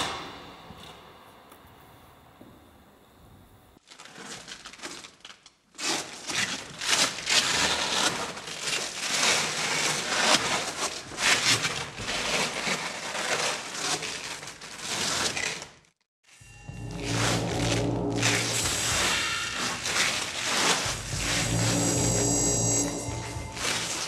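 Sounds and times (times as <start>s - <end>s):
velcro rubbing and pulling: 3.9s - 15.8s.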